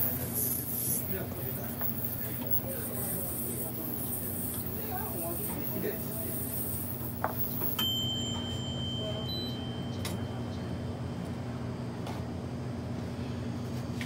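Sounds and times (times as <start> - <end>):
low background hum: 0.0 - 14.0
high electronic tone: 0.6 - 10.5.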